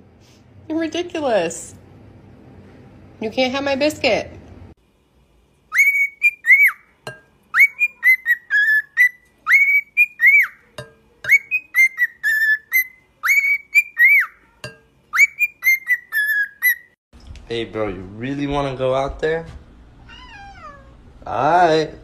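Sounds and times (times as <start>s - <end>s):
cockatiel whistling a tune: 5.7s - 6.9s, 7.5s - 10.6s, 11.3s - 14.4s, 15.1s - 17.0s.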